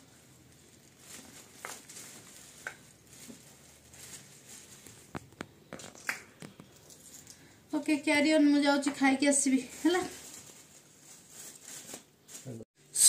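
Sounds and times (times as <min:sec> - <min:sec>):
pea pods snapping: 0:05.1 - 0:06.8.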